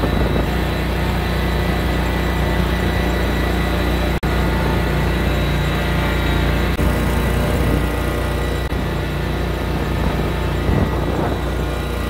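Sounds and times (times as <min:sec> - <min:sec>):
vehicle engine droning: 0:00.0 - 0:12.0.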